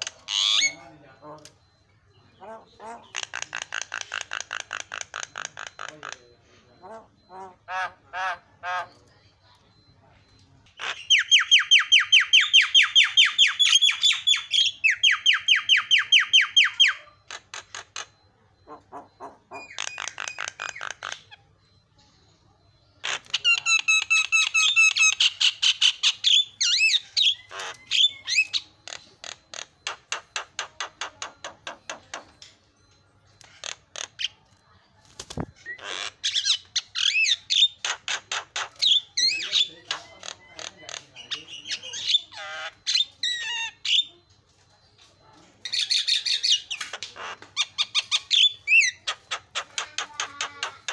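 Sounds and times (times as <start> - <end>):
myna harsh chattering calls: 2.4 - 6.2, 23.0 - 32.3, 35.2 - 44.1.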